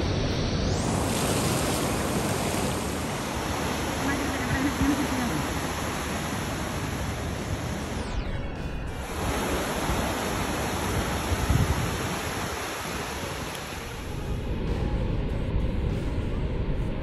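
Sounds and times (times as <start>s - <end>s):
waves breaking on a beach: 0.8s - 8.2s, 8.9s - 14.4s.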